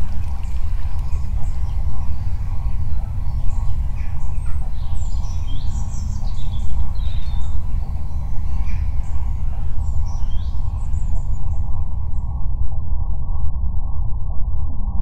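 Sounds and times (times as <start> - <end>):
birds chirping: 0.0 - 12.0
loud steady low rumble: 0.0 - 15.0.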